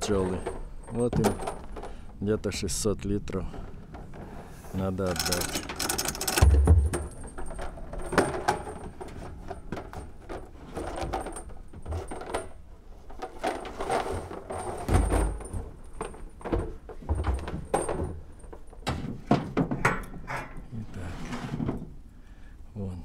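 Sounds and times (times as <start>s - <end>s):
low thumps: 6.4s - 7.4s
plastic barrels knocking: 6.4s - 7.4s, 14.6s - 18.2s.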